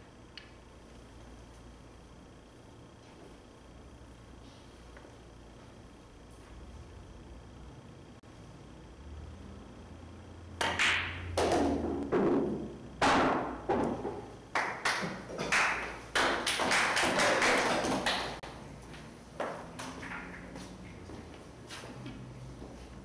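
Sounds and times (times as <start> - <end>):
pool balls clacking: 10.6 - 18.4.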